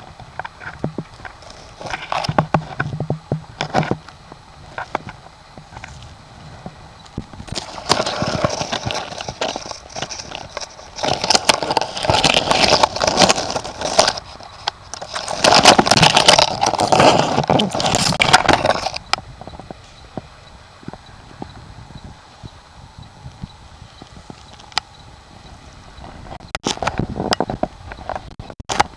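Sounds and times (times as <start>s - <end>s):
dry leaves rustling and crackling: 0.0s - 19.1s.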